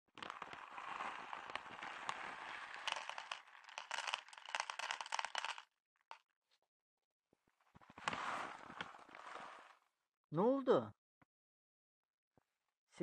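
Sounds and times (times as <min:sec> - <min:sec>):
plastic bag crinkling: 0:00.1 - 0:05.6
kibble pattering into plastic bowl: 0:00.2 - 0:05.6.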